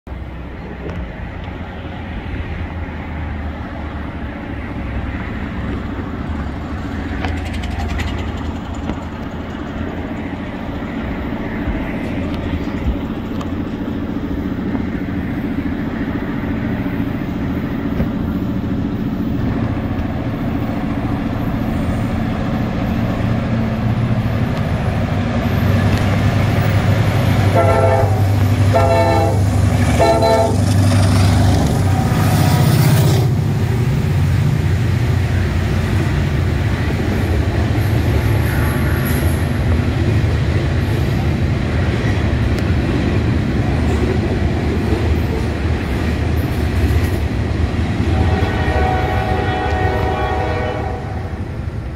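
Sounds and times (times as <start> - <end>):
diesel locomotive engine rumble: 0.1 - 51.9
freight cars rumbling past: 0.1 - 51.9
locomotive horn blasts: 27.5 - 30.6, 48.0 - 51.4.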